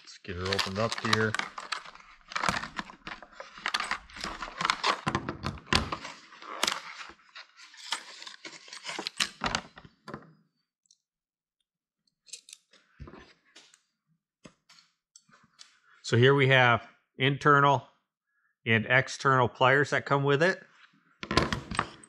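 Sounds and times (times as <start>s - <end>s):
plastic packaging crackling: 0.2s - 5.2s
tools clicking and knocking: 12.2s - 12.8s.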